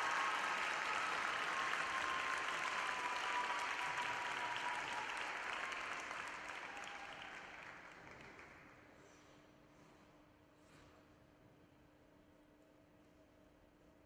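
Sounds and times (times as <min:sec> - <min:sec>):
crowd applauding: 0:00.0 - 0:08.8.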